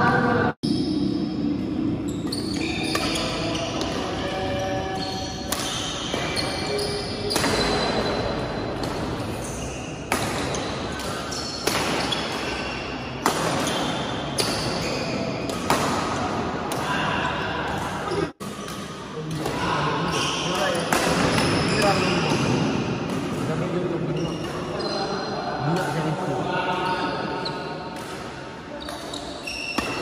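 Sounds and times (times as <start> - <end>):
court shoes squeaking: 0.6 - 25.9, 26.7 - 30.0
racket striking shuttlecock: 5.4 - 6.3, 7.3 - 8.2, 10.0 - 12.6, 13.2 - 14.8.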